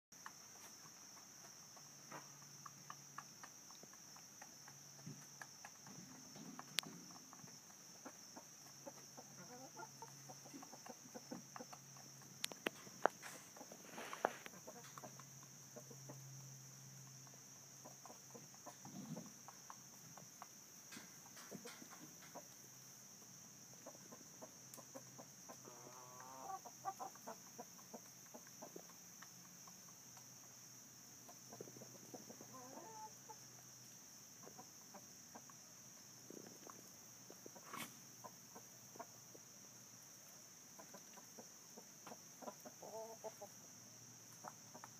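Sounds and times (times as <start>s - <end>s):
chickens clucking: 0.2s - 39.5s, 40.2s - 44.9s
chicken long calls: 25.6s - 27.2s, 31.8s - 33.4s, 42.7s - 43.5s.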